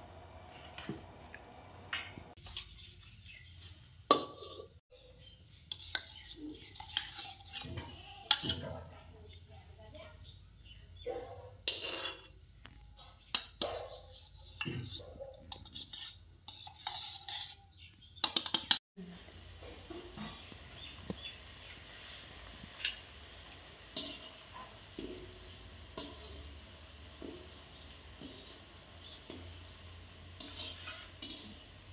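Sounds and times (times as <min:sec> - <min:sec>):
oil sizzling: 0:00.0 - 0:04.8, 0:19.0 - 0:31.9
wire skimmer scraping wok: 0:05.7 - 0:08.8, 0:11.6 - 0:12.4, 0:14.1 - 0:31.9
steel cup clinking on pan: 0:23.8 - 0:31.6.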